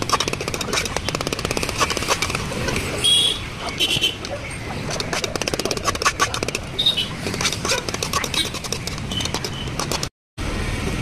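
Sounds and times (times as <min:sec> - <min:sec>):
street background noise: 0:00.0 - 0:11.0
ladle scraping a steel pan: 0:07.1 - 0:10.1.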